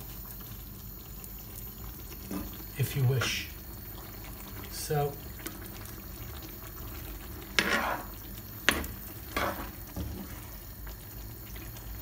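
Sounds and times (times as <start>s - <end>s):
stew simmering: 0.0s - 12.0s
spatula scraping pan: 7.5s - 10.6s.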